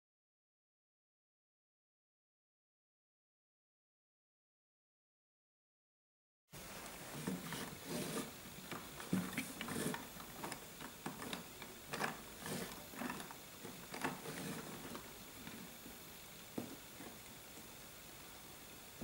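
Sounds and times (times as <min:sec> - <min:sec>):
plastic bricks clicking and knocking: 0:08.7 - 0:15.6.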